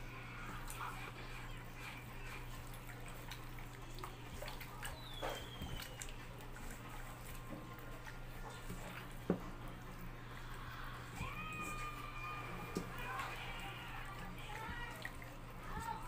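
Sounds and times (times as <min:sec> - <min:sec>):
wet squelches of kneading meat: 0:00.0 - 0:16.0.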